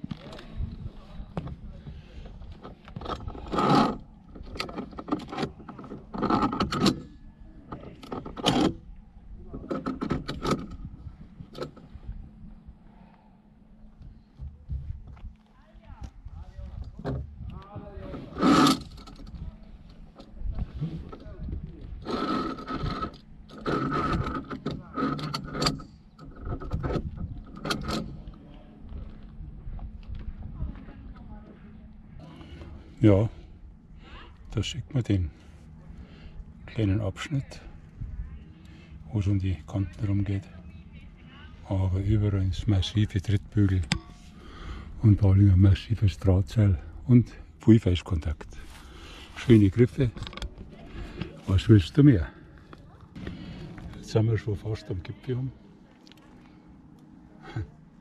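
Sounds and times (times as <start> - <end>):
carabiners scraping along steel cable: 2.2 - 12.0, 18.0 - 28.4, 48.0 - 54.1.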